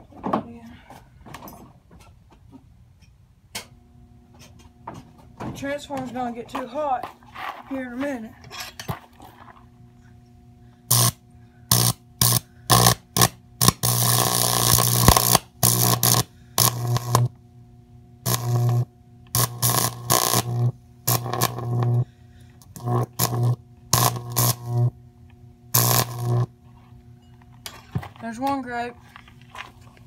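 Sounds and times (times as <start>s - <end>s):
electric arc buzzing and crackling: 10.9s - 17.4s, 18.2s - 25.0s, 25.6s - 26.7s.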